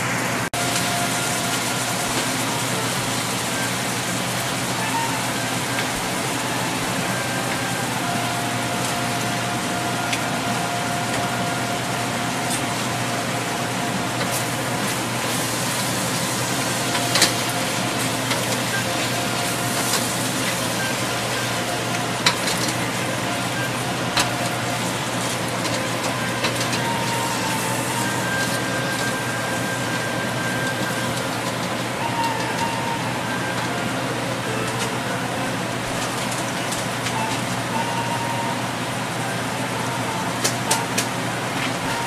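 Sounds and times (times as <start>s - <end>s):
scallops sizzling in hot oil: 0.6s - 33.7s.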